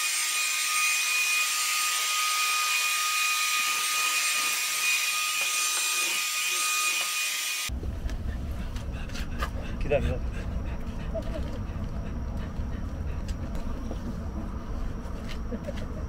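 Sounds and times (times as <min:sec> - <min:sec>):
low rumble: 0:07.7 - 0:16.0.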